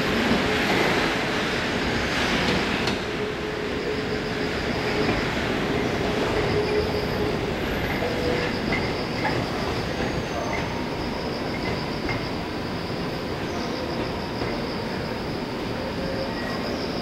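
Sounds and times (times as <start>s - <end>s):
electric train rumbling: 0.0s - 17.0s
wheel squeal: 3.7s - 17.0s.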